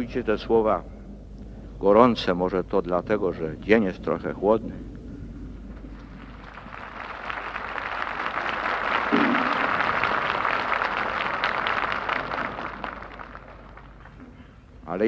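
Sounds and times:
crowd applauding: 0:05.7 - 0:14.7.

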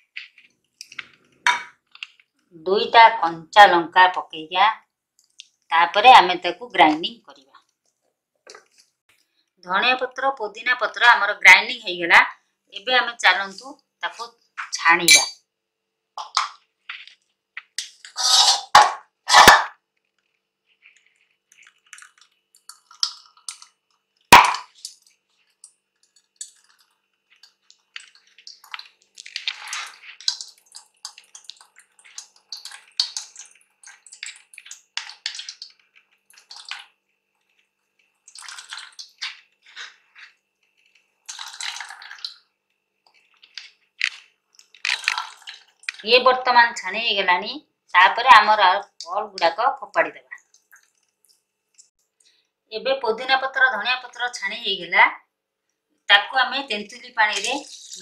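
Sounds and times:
spoon scraping strainer: 0:18.0 - 0:19.6, 0:57.3 - 0:58.0.

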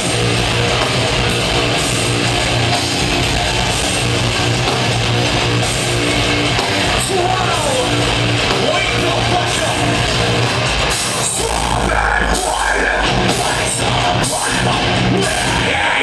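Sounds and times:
distorted electric guitars and bass: 0:00.0 - 0:16.0
drums: 0:00.0 - 0:16.0
shouted vocals: 0:06.8 - 0:10.0.

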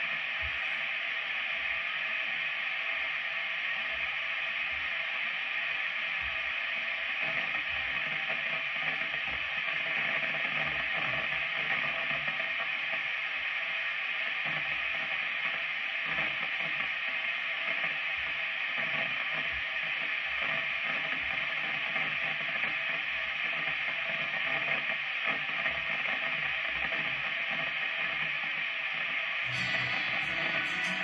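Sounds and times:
guitar amplifier hiss: 0:29.2 - 0:31.0
electric guitar notes: 0:29.5 - 0:31.0.

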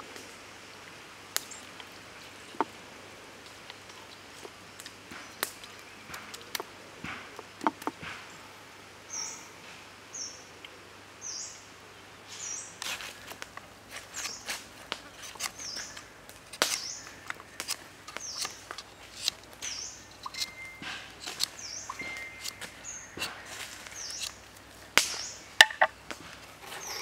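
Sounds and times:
bird chirping: 0:09.1 - 0:09.5, 0:15.2 - 0:26.0, 0:26.6 - 0:27.0
scraping: 0:12.8 - 0:27.0.

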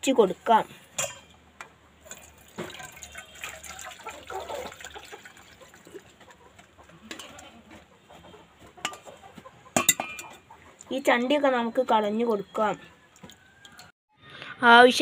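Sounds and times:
tea pouring and splashing: 0:02.0 - 0:06.4.

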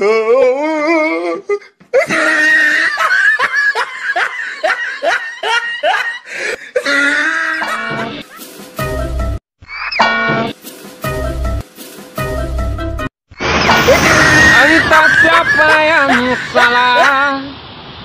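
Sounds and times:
person laughing heartily: 0:01.5 - 0:09.2, 0:13.8 - 0:17.4.

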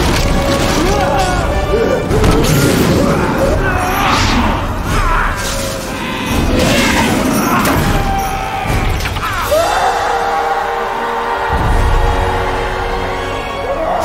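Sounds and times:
debris crashing and shattering: 0:00.0 - 0:09.6
orchestral film score: 0:00.0 - 0:14.0.

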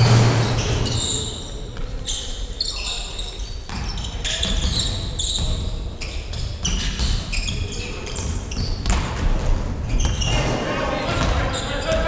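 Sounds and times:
loud hit: 0:00.0 - 0:00.9
sneakers squeaking on gym floor: 0:00.0 - 0:12.0
basketball bouncing: 0:08.2 - 0:10.3, 0:11.1 - 0:12.0.

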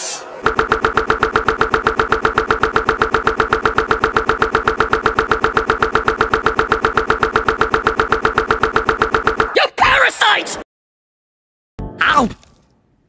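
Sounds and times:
fast looped buzzing stutter: 0:00.4 - 0:09.6.

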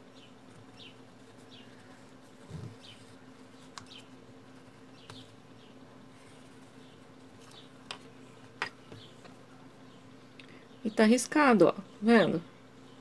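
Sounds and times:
quiet low hum: 0:00.0 - 0:13.0.

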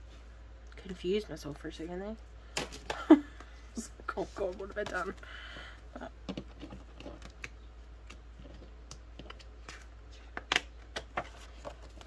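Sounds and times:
paper and plastic sleeves crinkling: 0:10.9 - 0:12.0.

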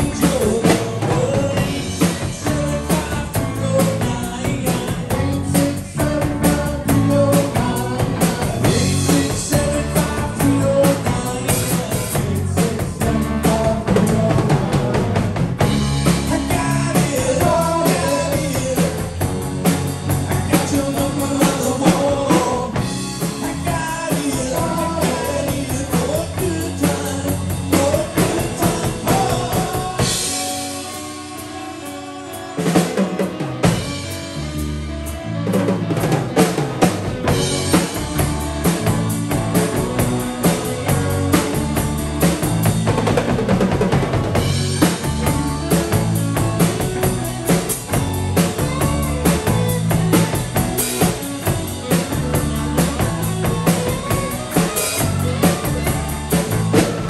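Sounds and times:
lead vocal singing: 0:00.0 - 0:31.8, 0:37.3 - 0:43.0
bass guitar: 0:00.0 - 0:57.0
drum kit: 0:00.0 - 0:57.0
electric guitars: 0:00.0 - 0:57.0
keyboard: 0:00.0 - 0:57.0.

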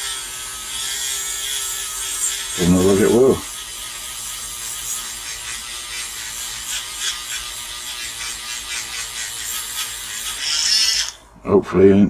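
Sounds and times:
wire brush scrubbing metal: 0:01.7 - 0:11.1.

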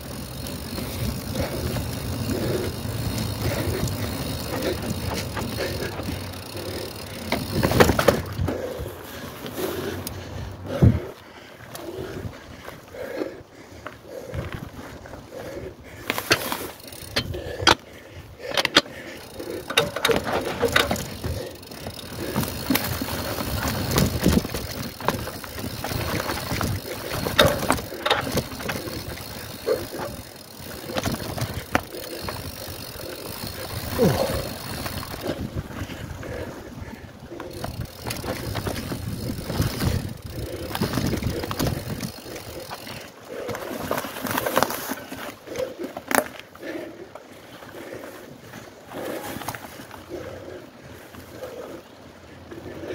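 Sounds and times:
voices: 0:00.0 - 0:11.2, 0:15.3 - 0:43.6
bike rattling over bumps: 0:00.0 - 0:52.9
bike tyre noise on dirt: 0:00.0 - 0:52.9.

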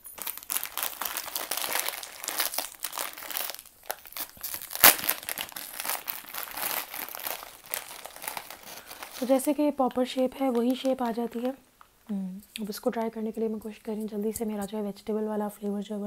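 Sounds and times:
snack bag ripping open: 0:00.0 - 0:09.4
foil snack bag crinkling: 0:00.0 - 0:09.6, 0:10.2 - 0:11.6.

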